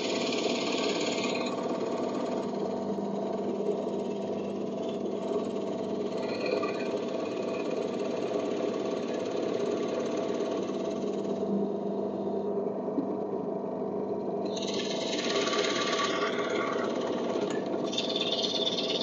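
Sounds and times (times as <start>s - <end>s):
drill bit boring into wood: 0.0s - 2.7s, 14.5s - 19.0s
drill press motor running: 0.0s - 19.0s.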